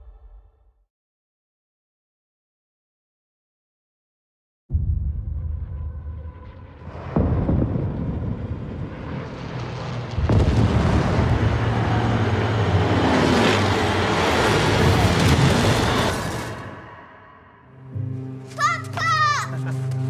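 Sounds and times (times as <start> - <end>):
heavy explosion hit: 4.7 - 9.2, 10.1 - 12.1
low engine drone: 4.8 - 18.4
warplanes roaring overhead: 5.8 - 18.4.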